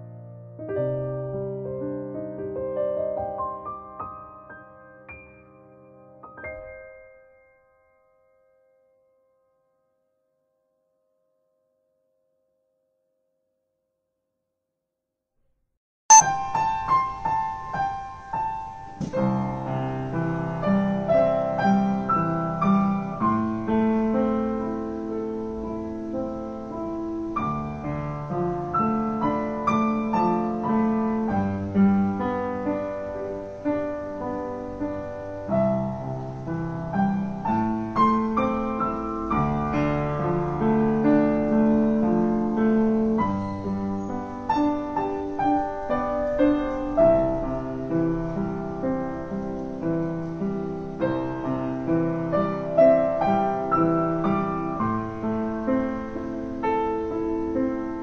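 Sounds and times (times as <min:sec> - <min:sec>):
piano music: 0:00.0 - 0:08.5, 0:16.1 - 0:58.0.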